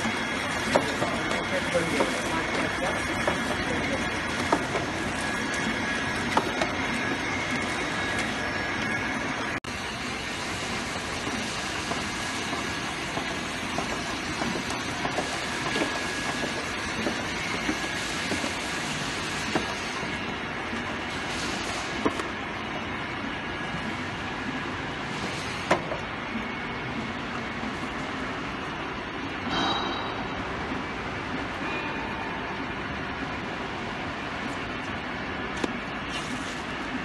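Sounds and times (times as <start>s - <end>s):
sealing machine and conveyor running: 0.0s - 28.4s.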